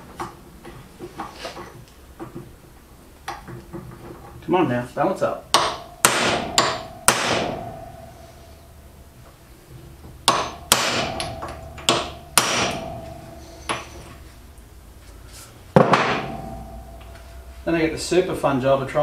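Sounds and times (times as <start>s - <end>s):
hammer striking metal: 5.5s - 8.9s, 10.2s - 14.3s, 15.7s - 18.1s.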